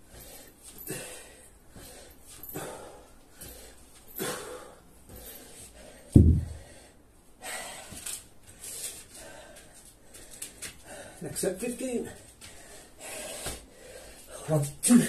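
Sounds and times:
man breathing hard: 0:00.0 - 0:11.3, 0:12.2 - 0:14.5
heavy thud on floor: 0:06.2 - 0:06.7.

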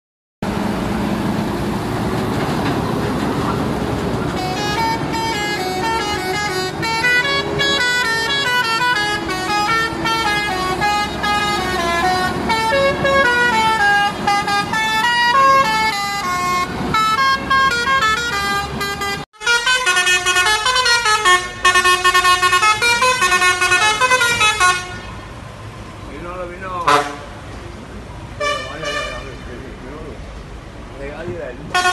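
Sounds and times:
truck engine running: 0:00.4 - 0:19.2
musical air horn playing a tune: 0:04.4 - 0:25.1.

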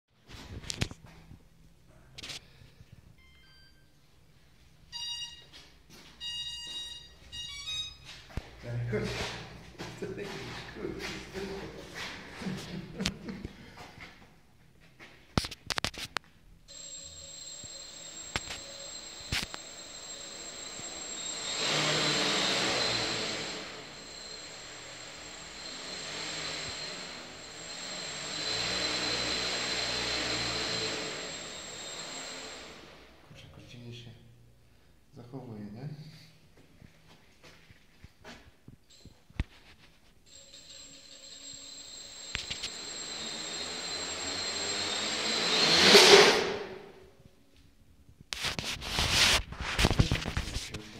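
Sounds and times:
drone propellers whirring: 0:16.7 - 0:33.0, 0:40.3 - 0:46.8.

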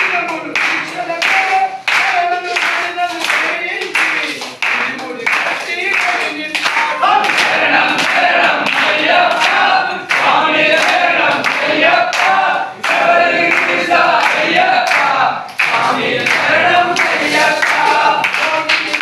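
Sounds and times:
rhythmic clapping: 0:00.0 - 0:19.0
men singing in chorus: 0:04.7 - 0:19.0.

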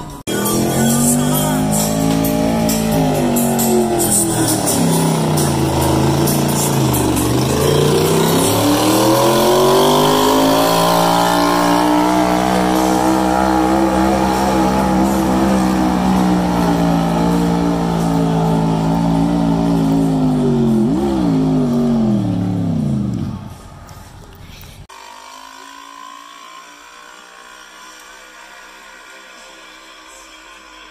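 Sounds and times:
tractor engine at full throttle: 0:00.0 - 0:24.4.

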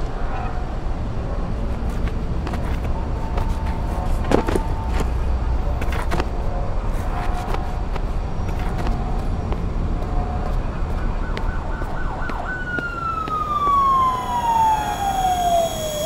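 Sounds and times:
low rumble of traffic: 0:00.0 - 0:16.0
emergency vehicle siren: 0:02.8 - 0:05.0, 0:10.0 - 0:16.0.

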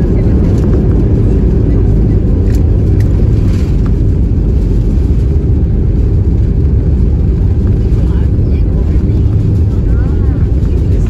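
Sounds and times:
airliner cabin rumble: 0:00.0 - 0:11.0.

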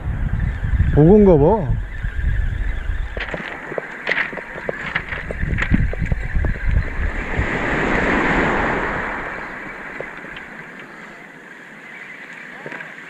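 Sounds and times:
wind buffeting microphone: 0:00.0 - 0:11.4
surf washing up pebble beach: 0:03.2 - 0:11.7.

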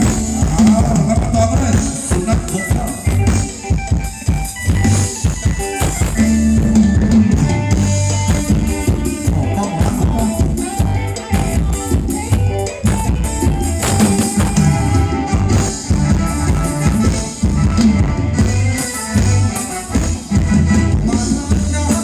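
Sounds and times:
drum kit steady beat: 0:00.0 - 0:22.0
live band dance music: 0:00.0 - 0:22.0.

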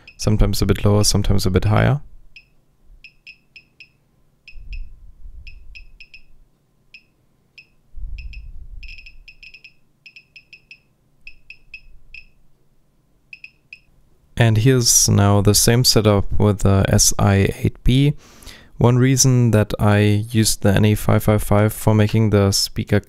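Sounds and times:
geiger counter chirping: 0:02.4 - 0:04.9, 0:05.5 - 0:06.4, 0:07.0 - 0:12.4, 0:13.3 - 0:13.9
low rumble: 0:04.6 - 0:06.4, 0:07.9 - 0:09.3.

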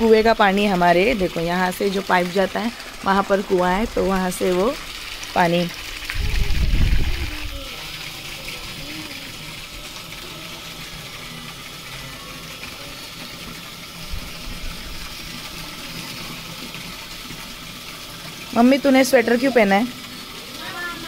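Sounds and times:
water gushing from a hose: 0:00.0 - 0:21.0.

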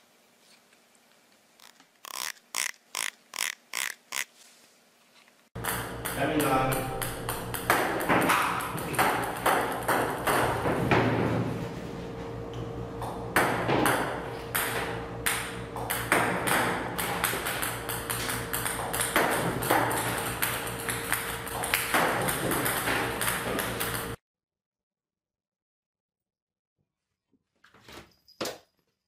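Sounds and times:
table-tennis balls clicking: 0:05.6 - 0:10.6, 0:15.3 - 0:24.2
steady hum: 0:05.6 - 0:24.2.

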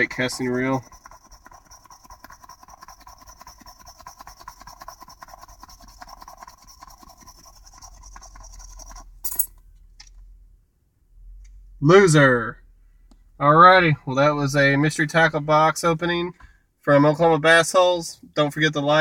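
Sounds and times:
scratching scratch card coating: 0:00.0 - 0:09.3.

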